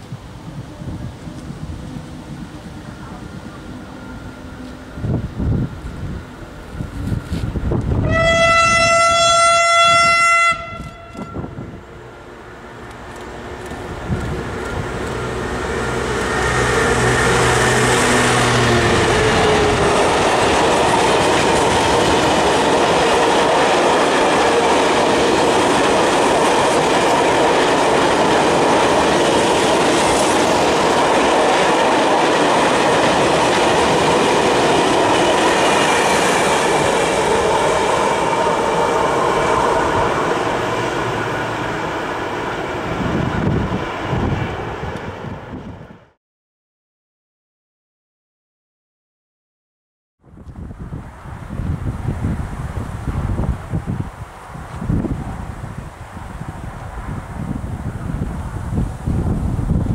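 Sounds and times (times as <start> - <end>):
locomotive horn blast: 8.0 - 11.8
train wheels clattering on rails: 19.0 - 41.8.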